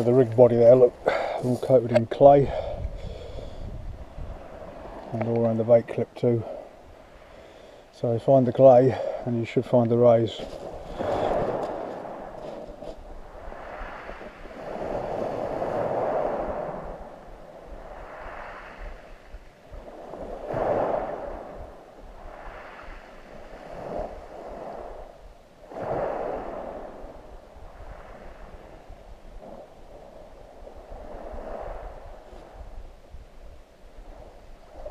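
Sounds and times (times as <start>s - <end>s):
waves washing over shingle: 8.3s - 17.2s, 17.8s - 25.0s.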